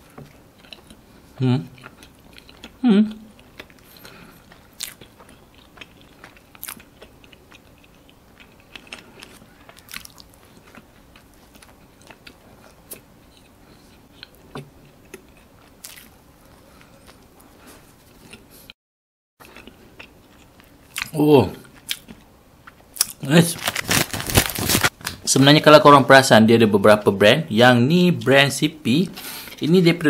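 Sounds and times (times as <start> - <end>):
man chewing wetly: 0.0 - 18.7, 19.4 - 23.2.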